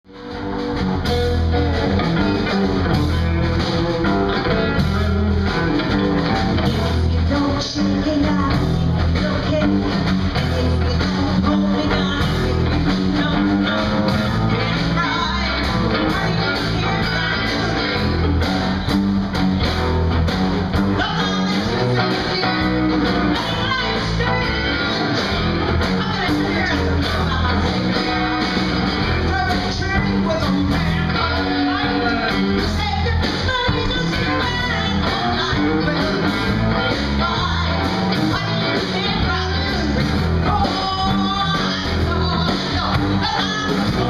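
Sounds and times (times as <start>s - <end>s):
live blues band playing: 0.1s - 44.0s
woman singing: 6.6s - 18.3s, 20.9s - 44.0s.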